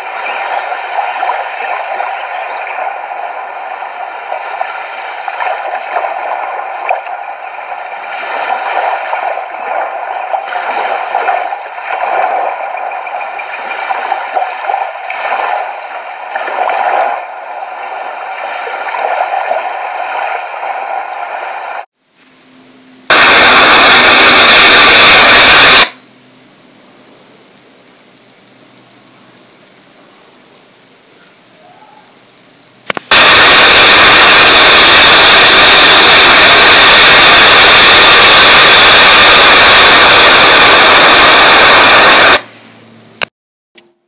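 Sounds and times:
ocean wave crashing: 0.0 - 21.9, 33.1 - 42.5
water sloshing and gurgling: 0.0 - 21.9.

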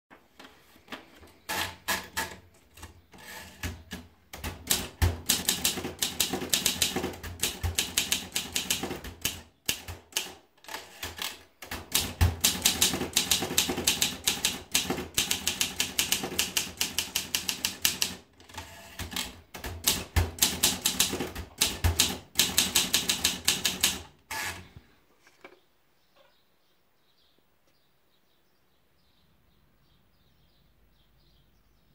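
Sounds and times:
typewriter keys striking: 3.6 - 24.1.

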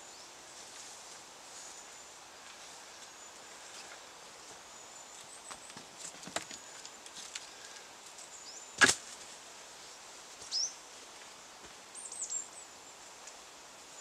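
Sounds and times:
small birds chirping: 10.4 - 14.0.

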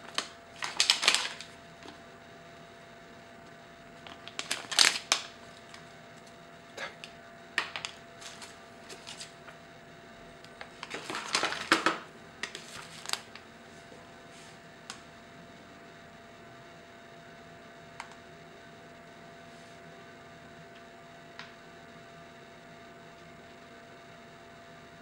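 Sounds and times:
plastic bags crinkling: 0.0 - 2.0, 4.0 - 5.8, 7.6 - 9.4, 10.5 - 13.4.

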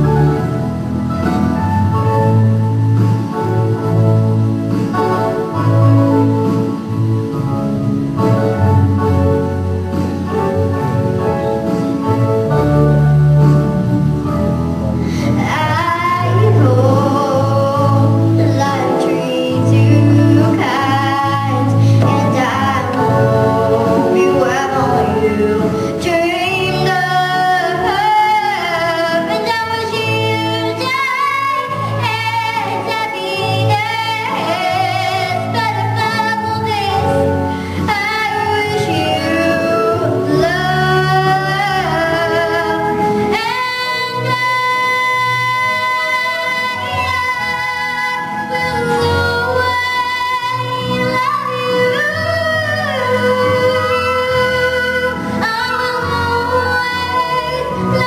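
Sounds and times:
keyboard playing: 0.0 - 58.0
girl singing into microphone: 15.1 - 58.0.

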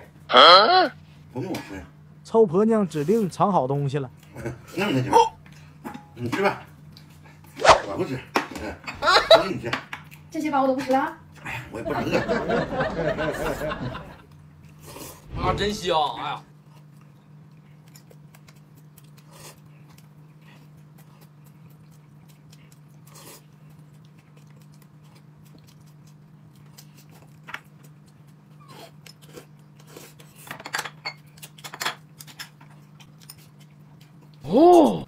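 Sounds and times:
steady low hum: 0.0 - 35.0
person eating: 14.6 - 15.4, 16.6 - 30.4.

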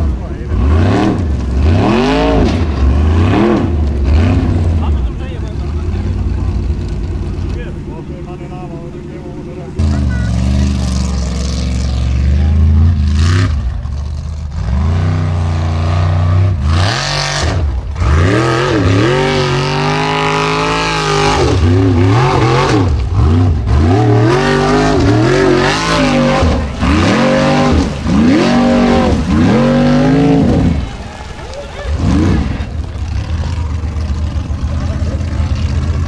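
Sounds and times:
buggy engine revving hard: 0.0 - 36.0.

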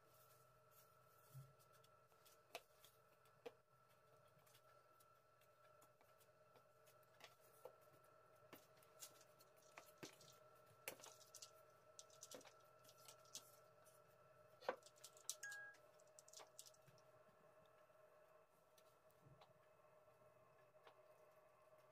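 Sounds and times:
pastry sheets rustling: 0.0 - 17.0
faint steady hum: 0.0 - 21.9.

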